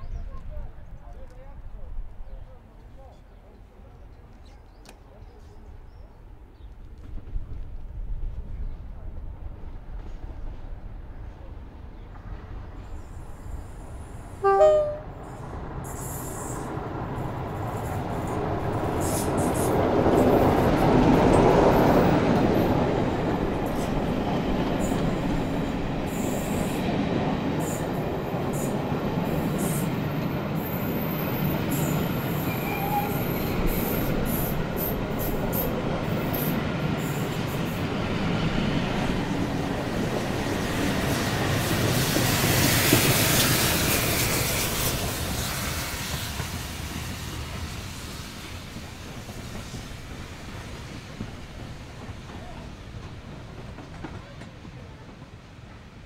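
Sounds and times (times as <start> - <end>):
steam locomotive passing: 7.2 - 56.0
locomotive horn blast: 14.4 - 15.3.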